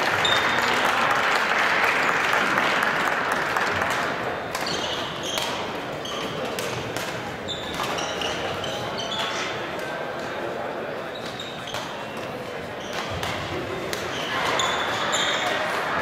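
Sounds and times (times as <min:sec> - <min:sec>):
dense hall noise: 0:00.0 - 0:16.0
shoes squeaking on court floor: 0:04.4 - 0:15.8.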